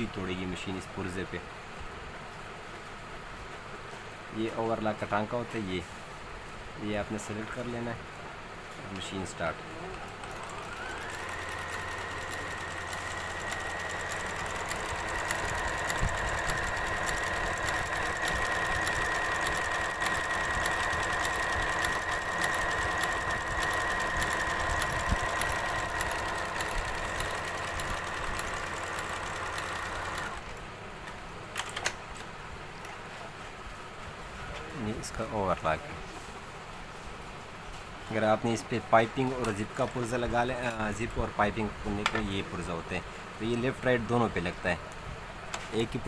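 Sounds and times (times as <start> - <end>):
sewing machine running: 10.1 - 30.5.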